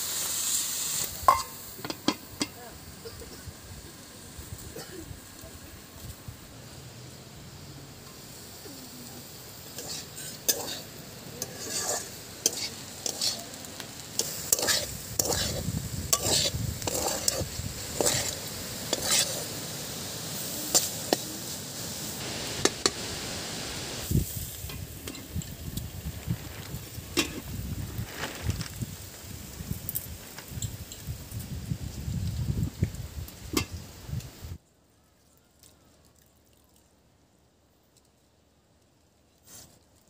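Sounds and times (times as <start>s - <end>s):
food sizzling in oil: 0.0s - 34.6s
metal spatula scraping pan: 9.7s - 13.4s, 14.2s - 19.5s.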